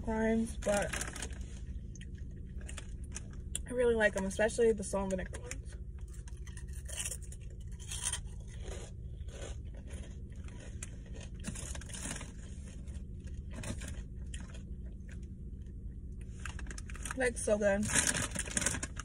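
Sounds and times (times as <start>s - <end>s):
low steady hum: 0.0s - 19.0s
crisp crunching chews: 0.8s - 3.6s, 5.4s - 17.2s.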